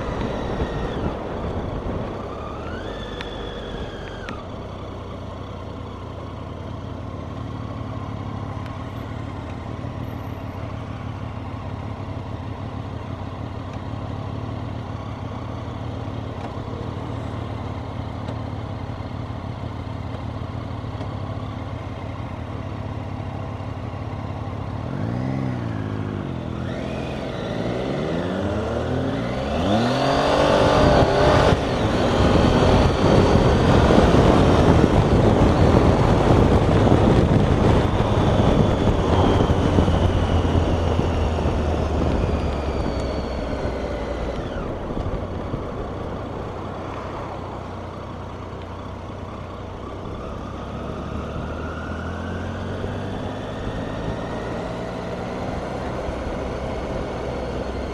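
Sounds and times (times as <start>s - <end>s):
motorcycle engine accelerating: 0.0s - 57.9s
wind rush on microphone: 29.8s - 46.8s.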